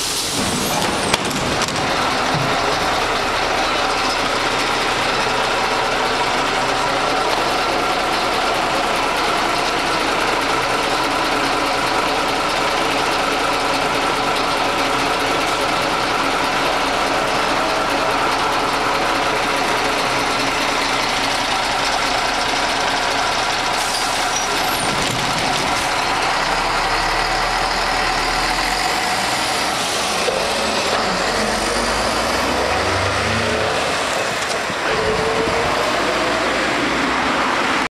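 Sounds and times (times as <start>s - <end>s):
bus diesel engine idling and accelerating: 0.0s - 37.9s.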